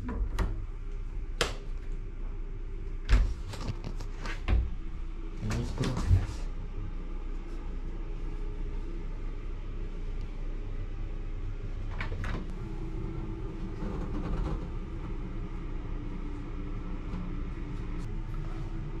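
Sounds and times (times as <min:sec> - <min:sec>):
faint hum: 0:00.0 - 0:19.0
steady low rumble: 0:00.0 - 0:19.0.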